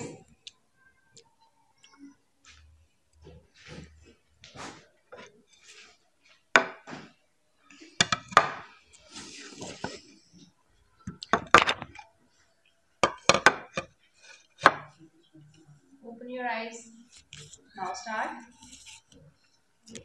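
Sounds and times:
plates knocking on a tabletop: 6.6 - 7.1, 8.0 - 8.7, 13.0 - 13.9, 14.6 - 15.0.

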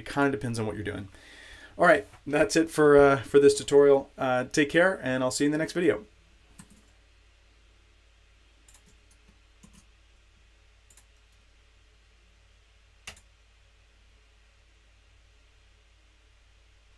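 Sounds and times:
computer keyboard and mouse clicks: 6.6 - 6.9, 8.7 - 9.9, 10.9 - 11.4, 13.0 - 13.3.

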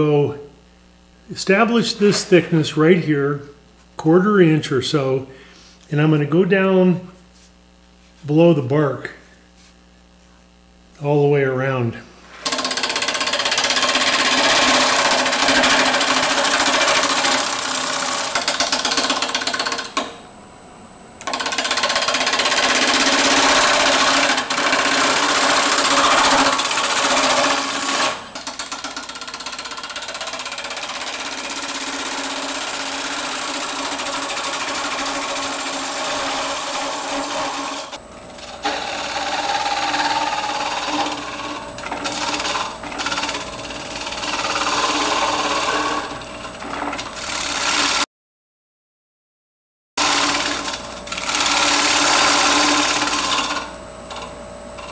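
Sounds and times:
wood lathe cutting scraping hiss: 12.3 - 20.2, 21.2 - 48.1, 50.0 - 54.9.

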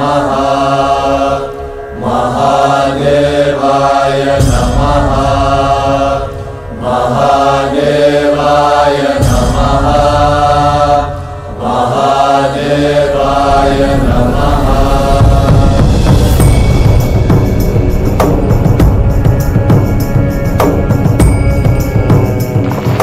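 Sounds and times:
voice chanting: 0.0 - 21.3
steady low drone: 0.0 - 23.0
sharp struck hit: 13.0 - 23.0.

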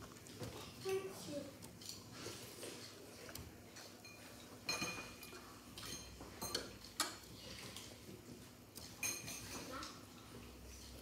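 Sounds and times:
cutlery clinking on ceramic plate: 3.9 - 7.2, 9.0 - 9.7.

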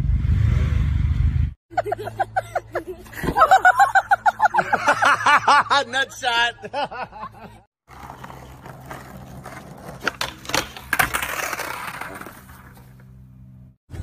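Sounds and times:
skateboard rolling on asphalt: 7.8 - 13.8.

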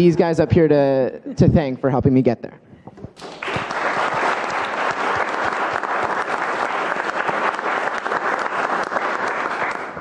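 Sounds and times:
audience applause: 3.2 - 10.0.

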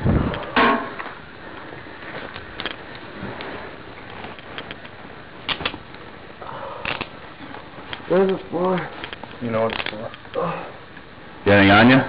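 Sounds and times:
clothing rustling: 1.0 - 10.3.

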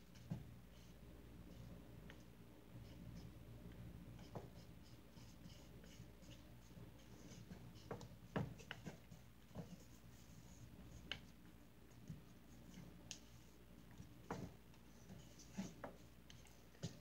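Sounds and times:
slime being stirred in plastic tub: 4.2 - 11.4.

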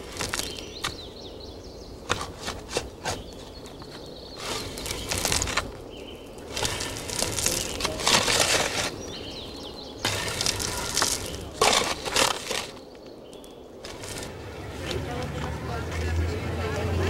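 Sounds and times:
footsteps crunching on gravel: 10.1 - 12.9, 13.8 - 17.0.

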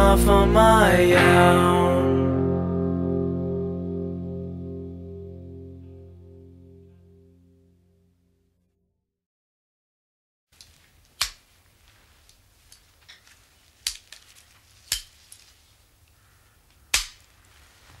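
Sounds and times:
faint low hum and hiss: 10.6 - 18.0.

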